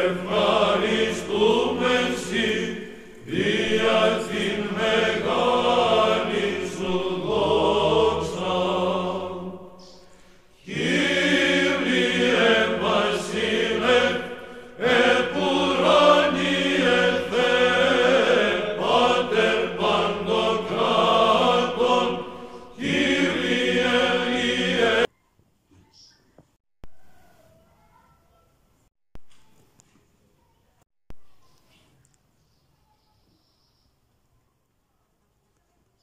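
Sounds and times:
choir chanting: 0.0s - 25.1s.

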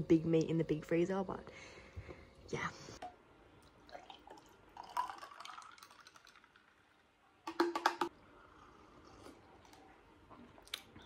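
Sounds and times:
coffee pouring into a glass: 3.6s - 8.0s
faint sipping: 8.4s - 11.0s.

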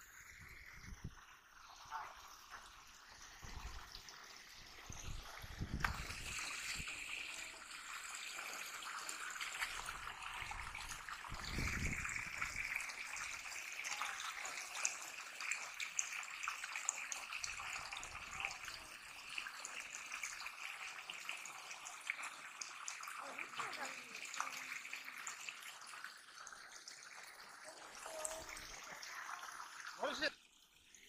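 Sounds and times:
water splashing and trickling: 0.0s - 31.0s.

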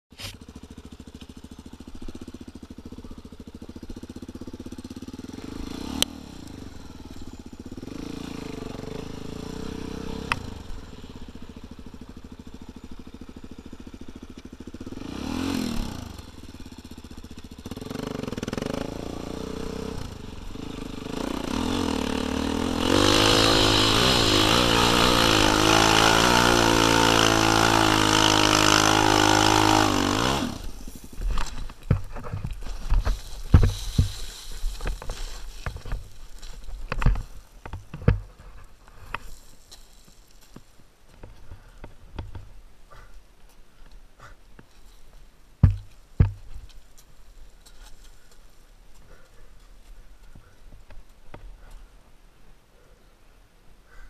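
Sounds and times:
dirt bike engine revving: 0.1s - 37.3s.

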